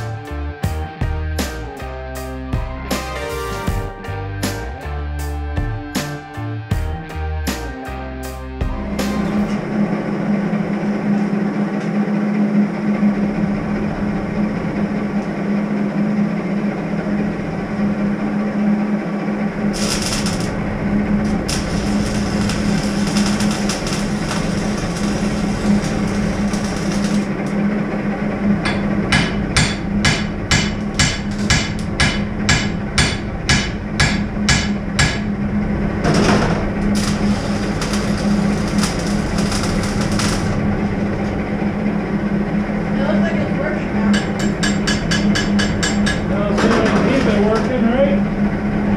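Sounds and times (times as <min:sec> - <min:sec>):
steady mechanical hum: 0:08.5 - 0:48.9
sharp knocks: 0:28.7 - 0:35.3.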